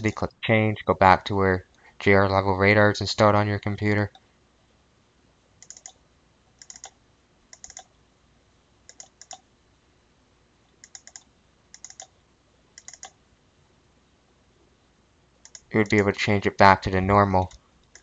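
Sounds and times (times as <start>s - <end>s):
computer mouse clicks: 5.6s - 6.0s, 6.6s - 7.9s, 8.9s - 9.5s, 10.7s - 12.2s, 12.8s - 13.2s, 15.4s - 16.0s, 17.5s - 18.0s.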